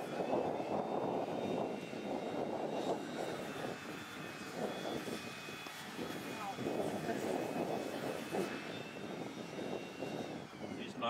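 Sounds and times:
aircraft engine droning: 0.0s - 11.0s
faint high whine: 0.0s - 11.0s.

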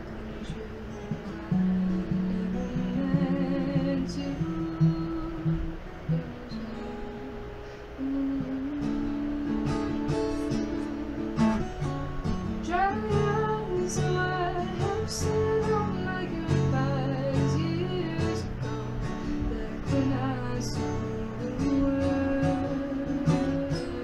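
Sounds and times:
acoustic guitar strumming: 0.0s - 24.0s
woman singing: 0.0s - 24.0s.

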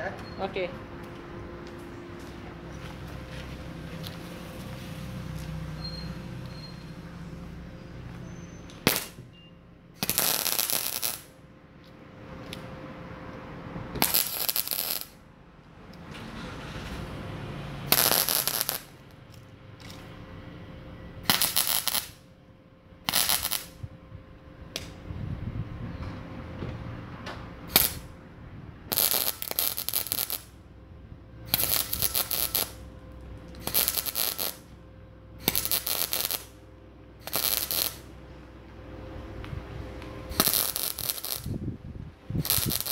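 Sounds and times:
welding arc crackling: 8.7s - 9.2s, 10.0s - 11.4s, 14.0s - 15.2s, 17.9s - 20.1s, 21.2s - 22.2s, 23.1s - 23.8s, 27.7s - 28.2s, 28.9s - 30.6s, 31.5s - 34.7s, 35.4s - 36.6s, 37.2s - 38.1s, 40.3s - 41.7s, 42.3s - 42.9s.

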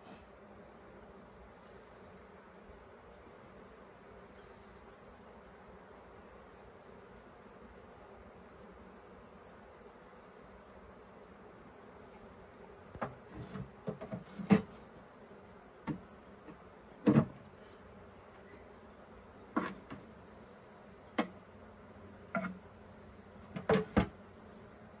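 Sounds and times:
honeybees buzzing: 0.0s - 25.0s
wooden hive frames knocking: 12.9s - 14.8s, 15.8s - 17.4s, 23.4s - 24.2s.

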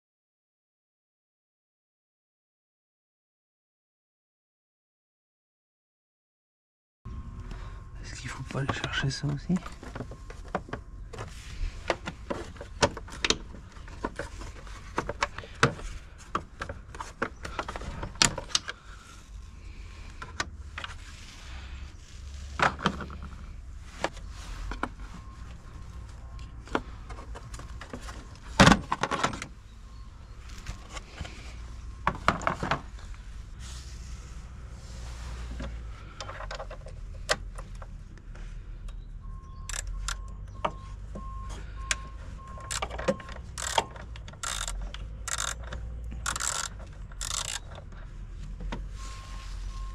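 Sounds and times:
tools and plastic covers clicking: 8.4s - 18.9s, 24.0s - 33.2s, 35.6s - 38.0s, 38.8s - 48.9s.

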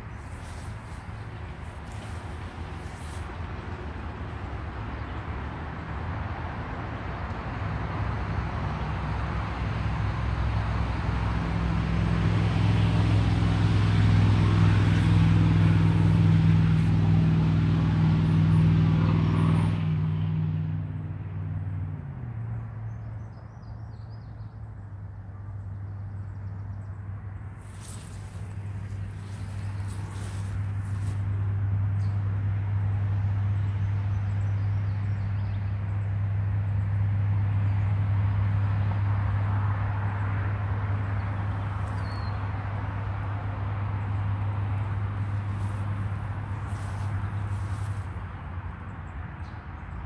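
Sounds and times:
road noise: 0.0s - 50.0s
car engine hum: 9.5s - 23.0s, 26.8s - 34.4s, 37.6s - 49.9s.

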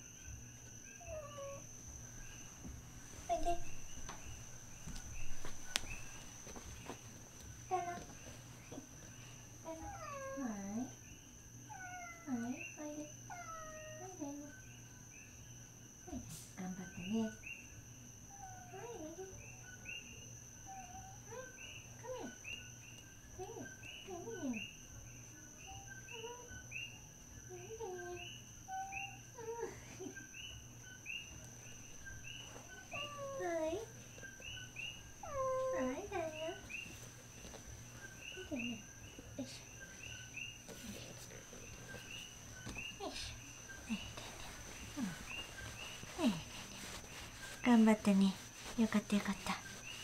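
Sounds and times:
high insect whine: 0.0s - 50.0s
frogs chirping in chorus: 19.4s - 50.0s
lower sliding frog calls: 42.0s - 50.0s.

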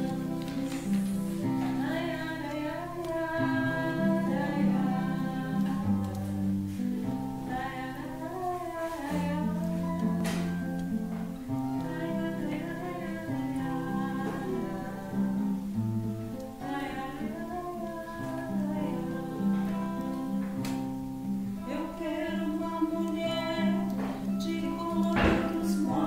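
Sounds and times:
people singing along: 0.0s - 6.3s, 11.8s - 15.5s, 21.8s - 26.0s
acoustic guitars playing folk song: 0.0s - 26.0s.

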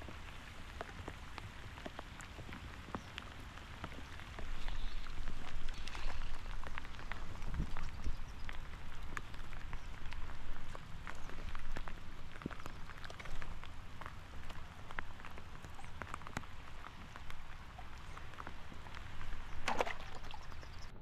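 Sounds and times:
light rain pattering: 0.0s - 21.0s.

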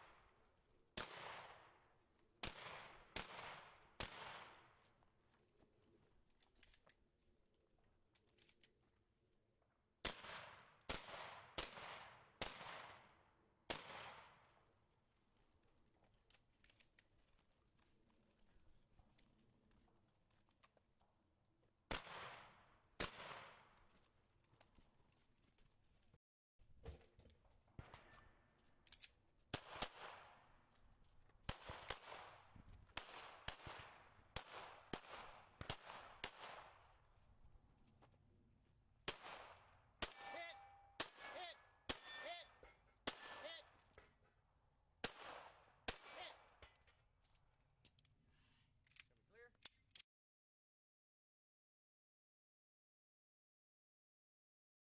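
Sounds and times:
rifle shots with echo: 0.0s - 4.9s, 10.0s - 14.7s, 21.9s - 23.8s, 27.8s - 28.4s, 29.5s - 30.7s, 31.4s - 37.2s, 39.0s - 43.8s, 45.0s - 46.6s.

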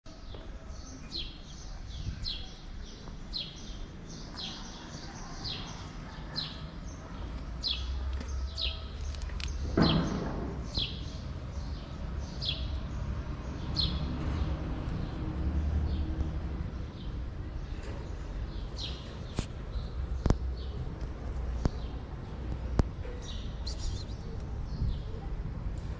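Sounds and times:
thump: 9.6s - 10.6s
small bird chirping: 23.3s - 24.4s.

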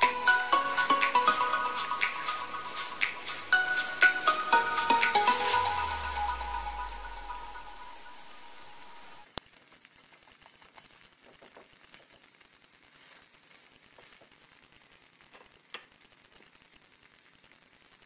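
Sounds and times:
pancake sizzling in oil: 8.8s - 18.0s.

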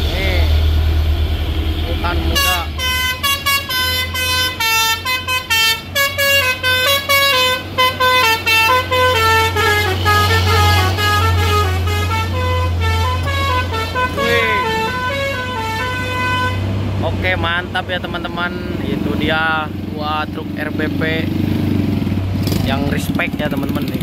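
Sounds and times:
diesel truck engine rumble: 0.0s - 24.0s
musical air horn tune: 2.3s - 16.7s.

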